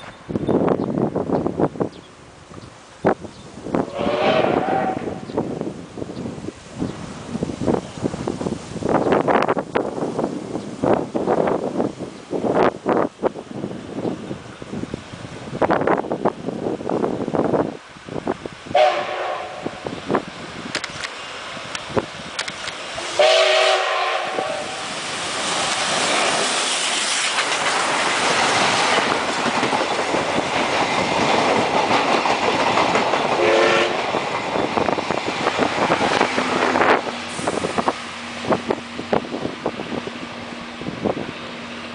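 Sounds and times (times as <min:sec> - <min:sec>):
steam locomotive whistle: 0:03.8 - 0:05.3, 0:18.7 - 0:19.8, 0:23.0 - 0:24.8, 0:33.4 - 0:34.0
train wheels clattering over rail joints: 0:25.4 - 0:38.6.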